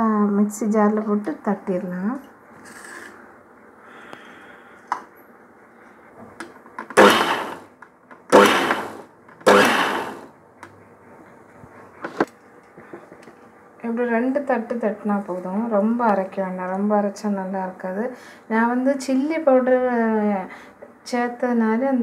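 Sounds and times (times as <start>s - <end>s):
electric mixer grinder pulsing: 7.0s - 7.7s, 8.3s - 10.3s.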